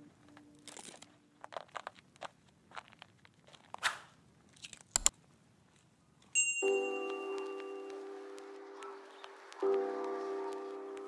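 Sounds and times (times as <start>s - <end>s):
faint scattered crackles: 0.0s - 11.0s
sharp mouse clicks: 4.9s - 5.1s.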